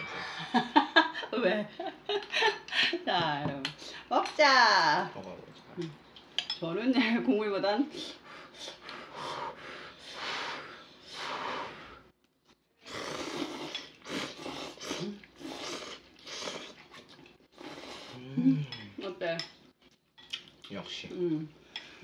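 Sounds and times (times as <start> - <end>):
people slurping noodles: 12.8 - 19.0.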